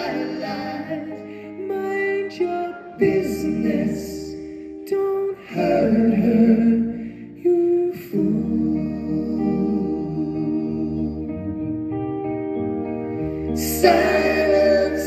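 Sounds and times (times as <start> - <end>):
male vocal harmonies: 0.0 - 11.9, 13.3 - 15.0
electric guitar: 0.0 - 15.0
bass guitar: 5.8 - 15.0.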